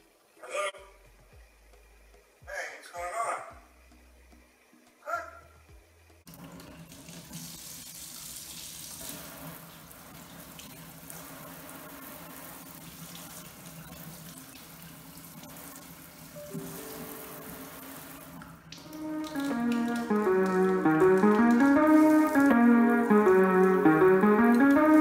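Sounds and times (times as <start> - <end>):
tap water splashing into sink: 16.6 - 22.7.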